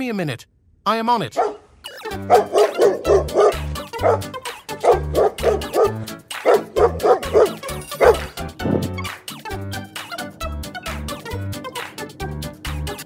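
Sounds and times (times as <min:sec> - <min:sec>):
cartoon dog barking: 0:01.3 - 0:08.4
playful music with bass beat: 0:01.9 - 0:13.0.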